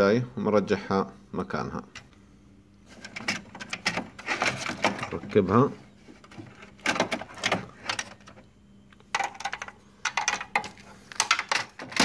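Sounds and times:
plastic and metal parts clicking: 0:06.2 - 0:08.4, 0:09.0 - 0:12.0.

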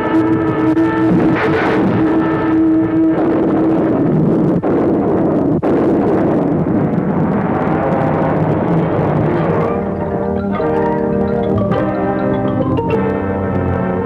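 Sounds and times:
rocket exhaust roar: 0:00.0 - 0:11.3
orchestral chord: 0:09.5 - 0:14.0.

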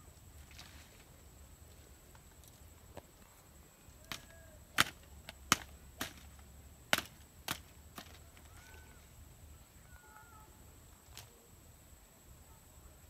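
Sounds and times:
plant stems snapping: 0:04.0 - 0:08.6.

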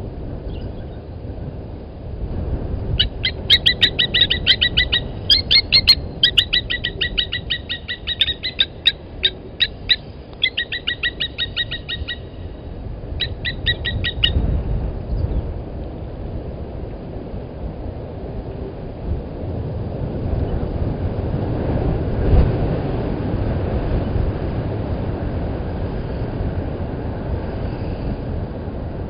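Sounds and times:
lapwing metallic alarm calls: 0:03.0 - 0:12.6, 0:13.2 - 0:14.4.

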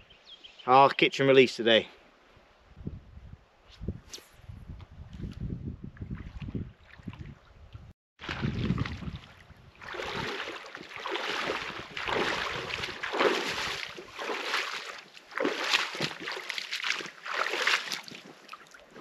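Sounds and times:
wind rumble on microphone: 0:02.4 - 0:10.5, 0:11.4 - 0:14.1
shallow water splashing: 0:08.2 - 0:19.0.

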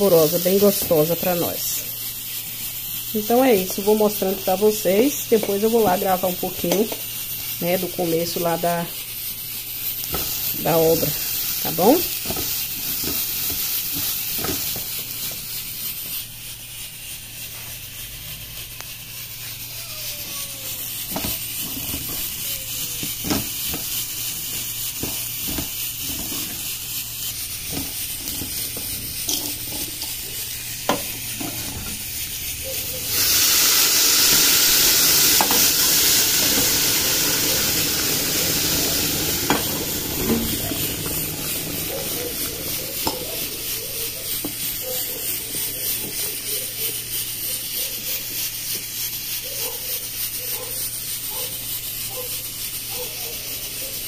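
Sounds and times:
food sizzling in a pot: 0:00.0 - 0:54.0
loud hiss of steam: 0:00.0 - 0:54.0
spoon scraping and knocking pot: 0:12.2 - 0:15.0, 0:21.1 - 0:22.4, 0:23.0 - 0:26.6, 0:27.7 - 0:30.2, 0:30.8 - 0:32.0, 0:35.2 - 0:44.7.

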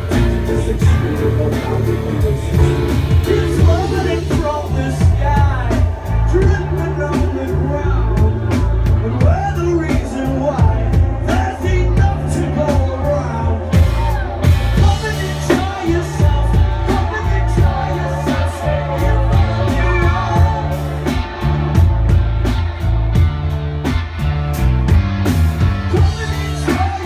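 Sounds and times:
trombone line: 0:00.0 - 0:05.2
bass guitar: 0:00.0 - 0:27.0
drums: 0:00.0 - 0:27.0.

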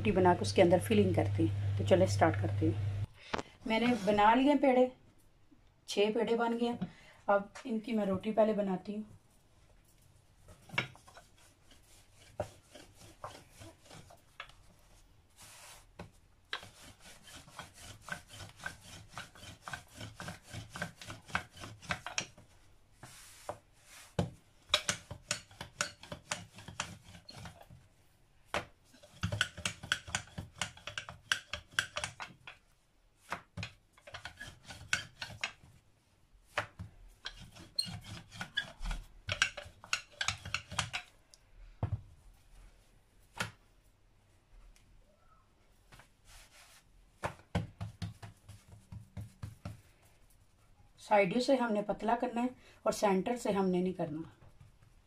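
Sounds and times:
rolling pin rubbing on dough: 0:10.4 - 0:27.8, 0:34.0 - 0:35.5, 0:37.1 - 0:41.0.

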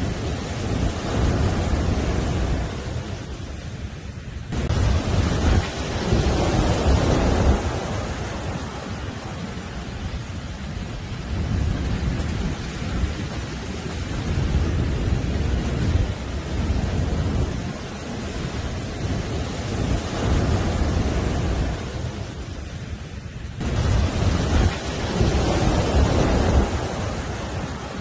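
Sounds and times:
surf breaking on beach: 0:00.0 - 0:28.0.

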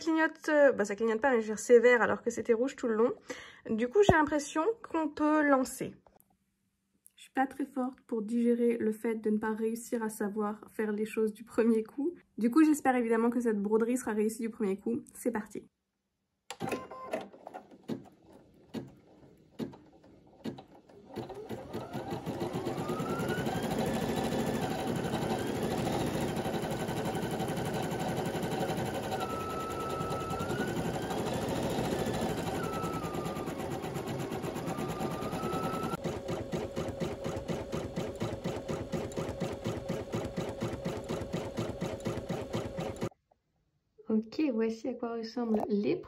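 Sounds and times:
embroidery machine stitching: 0:16.5 - 0:43.1.

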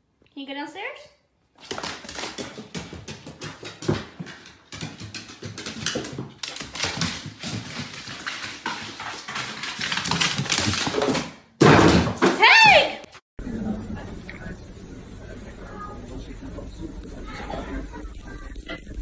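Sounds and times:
pet footsteps on wooden stairs: 0:01.7 - 0:11.2.

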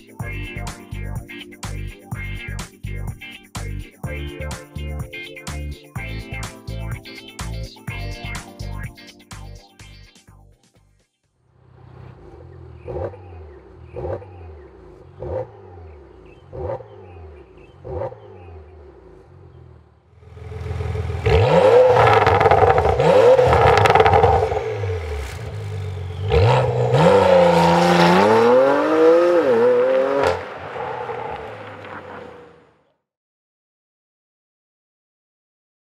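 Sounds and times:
car accelerating hard: 0:11.6 - 0:32.8
car engine revving: 0:11.6 - 0:32.8.

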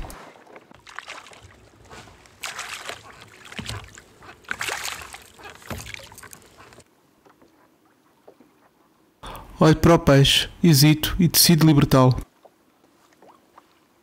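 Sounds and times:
water splashing against a kayak: 0:00.0 - 0:06.9.

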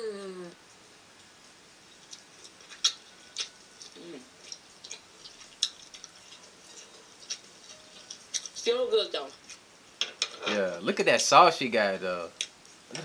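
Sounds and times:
crab shells cracking: 0:02.1 - 0:08.6.

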